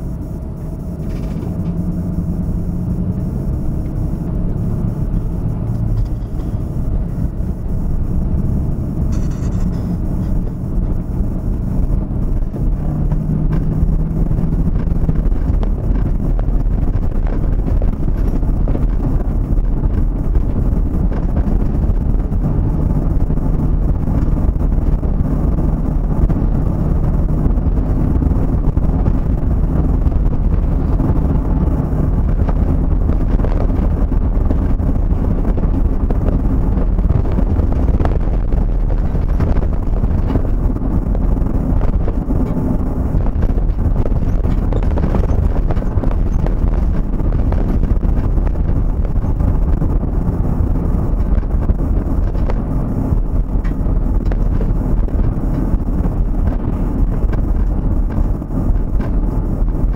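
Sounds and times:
vehicle road and engine rumble: 0.0s - 59.9s.

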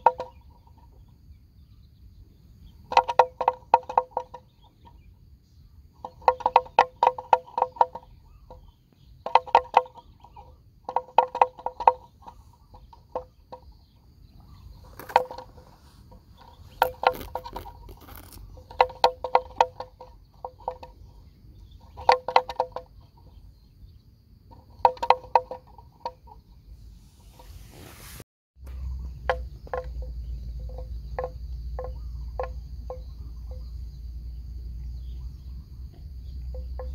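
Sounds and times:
faint high insect whine: 0.0s - 28.0s, 28.6s - 36.9s.

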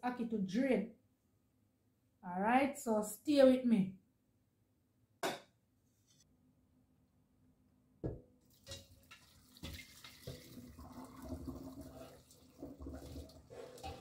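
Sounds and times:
water splashing into metal colander: 8.4s - 14.0s.

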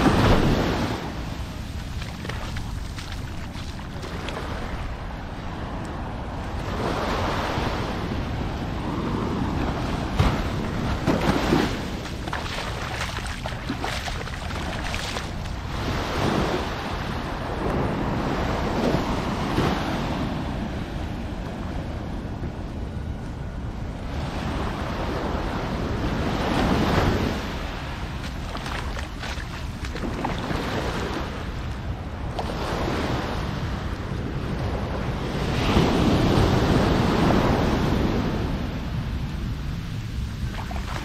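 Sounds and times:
waves washing on beach: 0.0s - 41.0s
wind rumbling on microphone: 0.0s - 41.0s.

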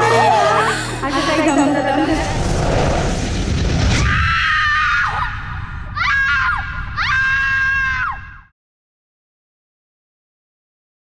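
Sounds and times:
loud sound mix: 2.0s - 7.1s.

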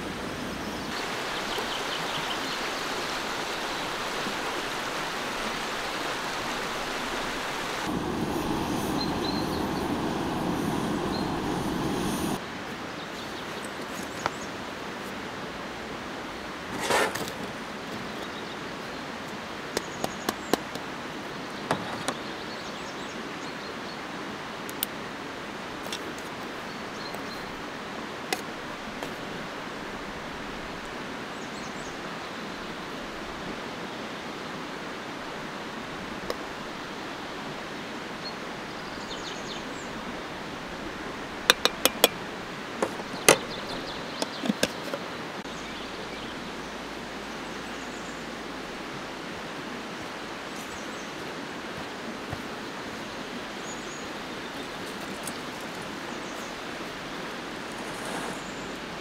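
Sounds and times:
steady rushing hiss: 0.0s - 18.1s, 24.4s - 59.0s.

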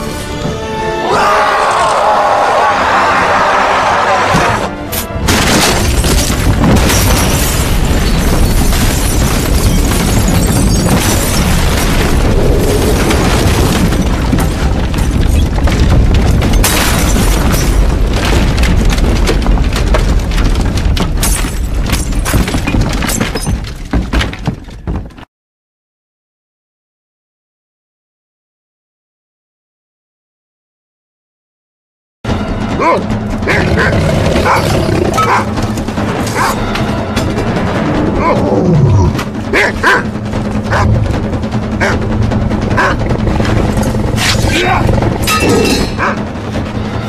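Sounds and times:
background music: 0.0s - 10.6s, 32.3s - 47.0s
debris shattering and crashing: 3.8s - 25.1s
loud explosion blast: 5.2s - 21.0s
heavy low rumble: 7.5s - 16.6s, 33.0s - 47.0s.

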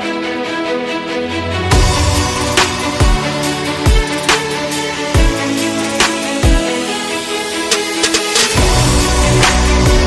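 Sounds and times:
held music chords: 0.0s - 10.0s
deep kick drum: 1.7s - 3.3s, 3.9s - 4.1s.

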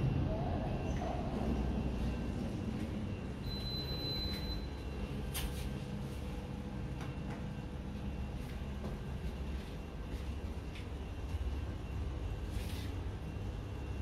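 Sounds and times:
low hum inside lift car: 0.0s - 14.0s
high beep: 3.4s - 4.8s.

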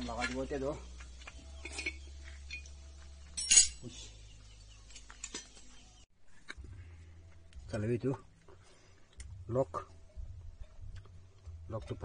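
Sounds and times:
metal tools clinking: 1.6s - 3.9s, 4.8s - 5.6s.

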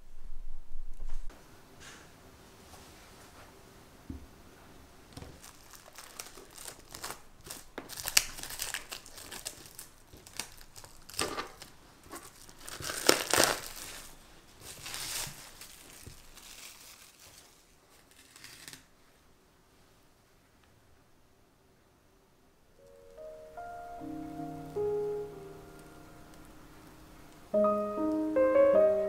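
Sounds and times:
cling film crinkling: 5.1s - 18.9s.

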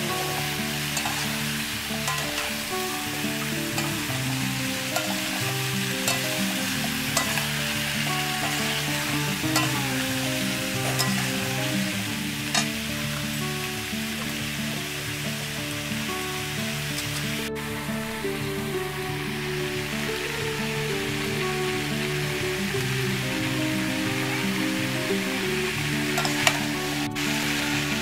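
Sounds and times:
soft background music: 0.0s - 28.0s
vegetables sizzling in a pan: 0.0s - 28.0s
metal spatula scraping a pan: 0.9s - 2.6s, 4.8s - 7.6s, 8.4s - 11.5s.

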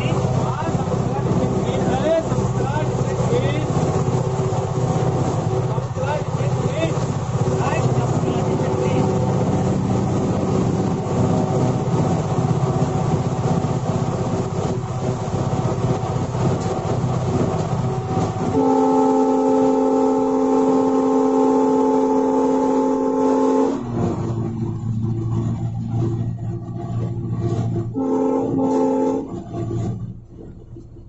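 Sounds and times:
locomotive cab rumble and rattle: 0.0s - 31.0s
locomotive air horn chord: 18.5s - 24.2s, 27.9s - 29.5s.

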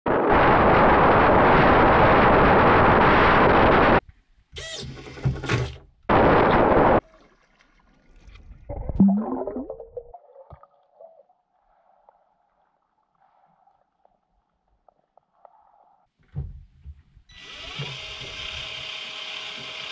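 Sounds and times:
anchor plunging with bubbling: 8.4s - 11.4s
winch motor whirring with clicks: 17.3s - 19.9s.

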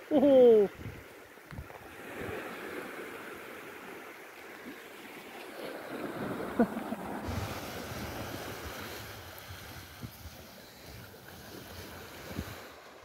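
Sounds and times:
small waves on sandy shore: 0.0s - 13.0s.

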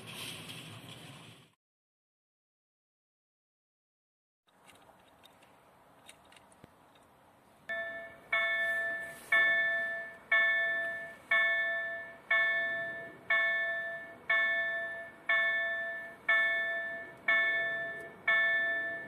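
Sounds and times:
level crossing warning bell ringing: 7.7s - 19.0s.

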